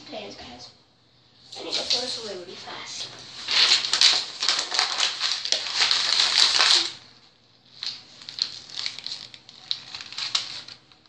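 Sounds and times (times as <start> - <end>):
light rustling and crinkling: 1.6 - 7.0, 7.7 - 11.0.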